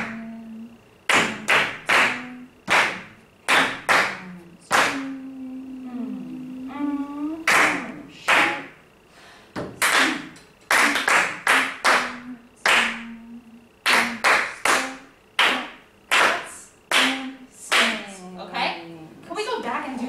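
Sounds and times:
choir clapping in unison: 1.1s - 5.1s, 7.5s - 8.6s, 9.8s - 13.1s, 13.8s - 18.0s.

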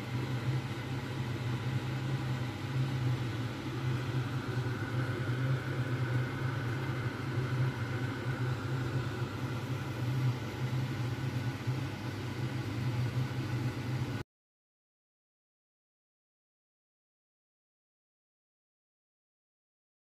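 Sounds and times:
low mechanical machine hum: 0.0s - 14.2s.

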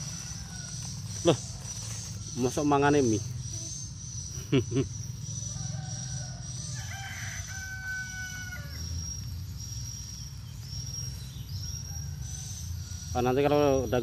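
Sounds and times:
rooster crowing: 0.0s - 1.6s, 5.3s - 9.2s
high insect chirring: 0.0s - 14.0s.

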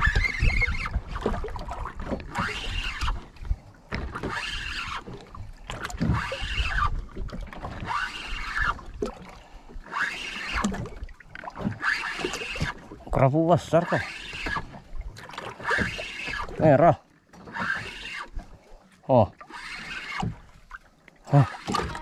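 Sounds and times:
fishing reel whirring: 0.0s - 1.3s, 2.2s - 3.3s, 4.2s - 7.0s, 7.6s - 8.9s, 9.8s - 10.8s, 11.7s - 12.8s, 13.8s - 14.8s, 15.5s - 16.6s, 17.4s - 18.4s, 19.4s - 20.4s, 21.3s - 22.0s
wind rumble on microphone: 0.0s - 3.7s.

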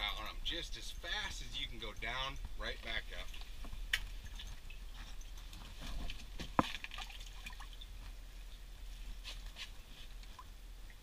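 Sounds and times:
water dripping: 0.0s - 5.6s, 6.6s - 8.2s, 10.1s - 11.0s.

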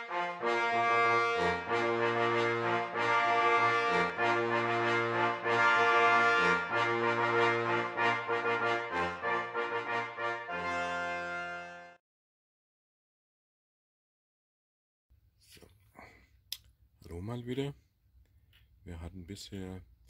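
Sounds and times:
instrumental music with brass: 0.0s - 12.0s.

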